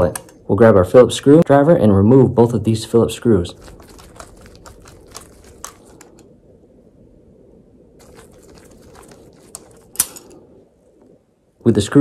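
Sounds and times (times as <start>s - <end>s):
screwdriver clicking and scraping metal: 3.6s - 6.3s, 9.0s - 10.4s.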